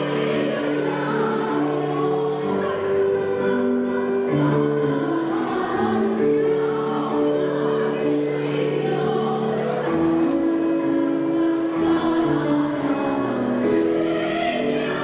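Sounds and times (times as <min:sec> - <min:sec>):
women's choir singing: 0:00.0 - 0:15.0.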